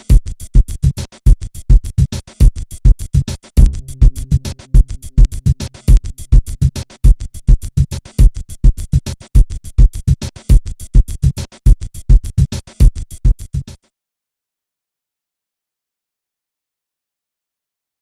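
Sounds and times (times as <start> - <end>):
electronic music with fast beat: 0.0 - 13.8.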